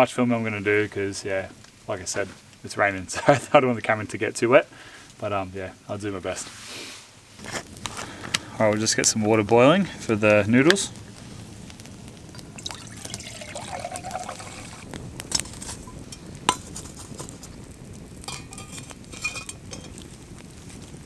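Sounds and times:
water pouring into metal pot: 0:12.3 - 0:16.0
metal pot clinking: 0:12.6 - 0:16.9, 0:18.3 - 0:20.0.

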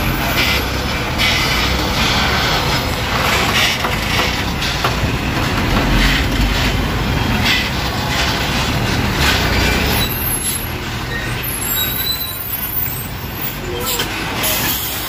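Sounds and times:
heavy vehicle passing: 0:00.0 - 0:11.7.

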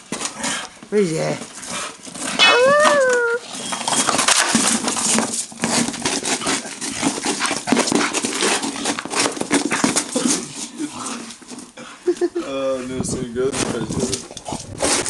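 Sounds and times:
dog teeth scraping hard plastic: 0:03.4 - 0:11.8, 0:13.5 - 0:15.0.

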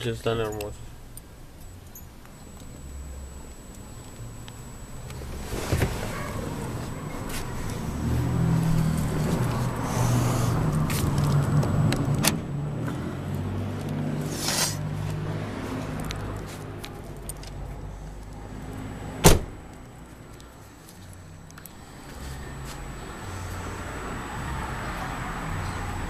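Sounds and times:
low car hum: 0:00.0 - 0:26.0
car door slamming: 0:05.2 - 0:06.9, 0:19.2 - 0:19.6.

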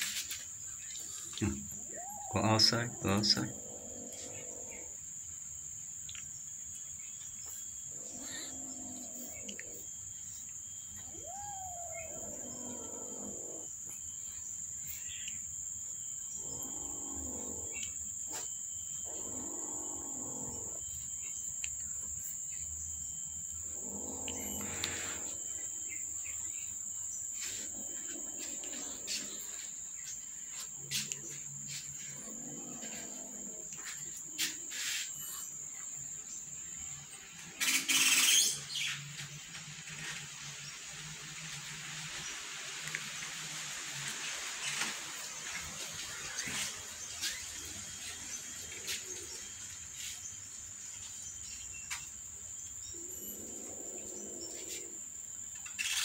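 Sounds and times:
high insect trill: 0:00.0 - 0:56.0
cats mewing: 0:01.1 - 0:05.0, 0:10.9 - 0:13.7, 0:23.8 - 0:25.6.

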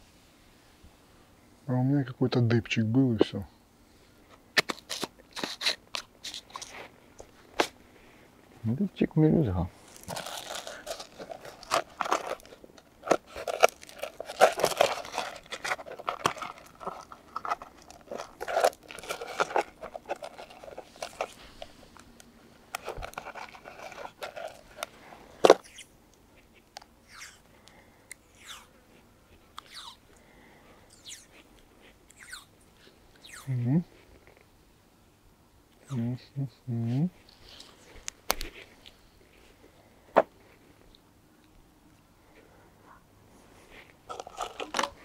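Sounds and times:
crunching and rustling handling: 0:04.2 - 0:09.0, 0:09.6 - 0:34.6, 0:36.8 - 0:39.8, 0:43.4 - 0:45.0.

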